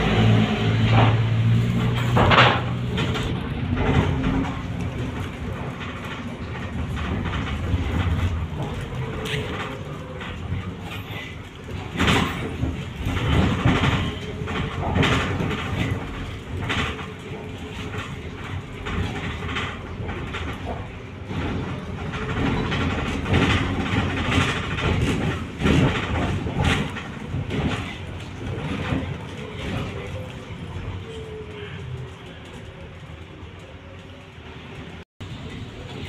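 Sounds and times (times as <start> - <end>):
trolleybus cabin rumble: 0.0 - 36.0
body knocks and rattles: 11.6 - 30.1.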